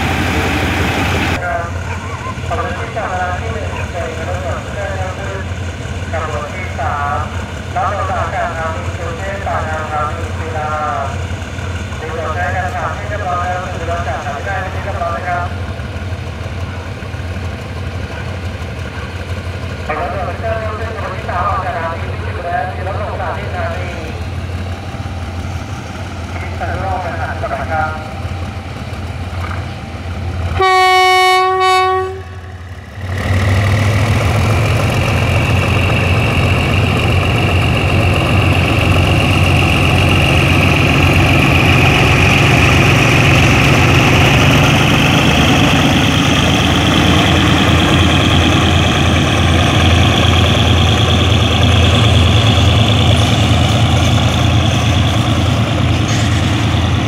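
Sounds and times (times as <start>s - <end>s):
diesel locomotive running under power: 0.0s - 57.0s
locomotive horn blast: 30.5s - 32.5s
tank wagons rumbling by: 32.6s - 57.0s.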